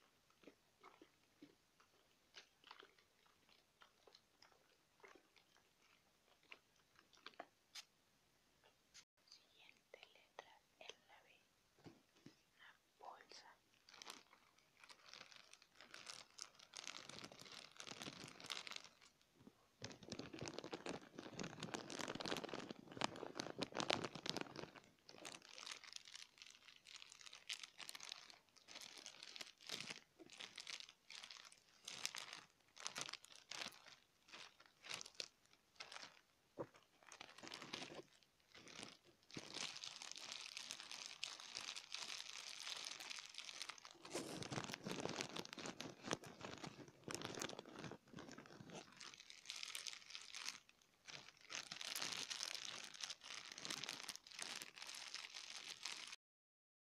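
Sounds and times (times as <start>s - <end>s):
plastic bag crinkling: 13.4s - 19.2s, 19.8s - 56.2s.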